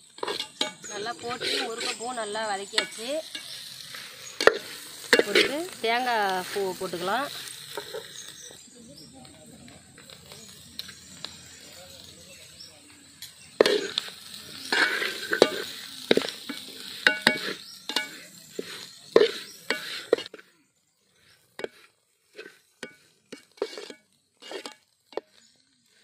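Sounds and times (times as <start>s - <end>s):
metal ladle scraping a pot: 0.0s - 8.6s, 13.5s - 20.5s, 21.2s - 25.4s
light sizzle: 0.0s - 26.0s.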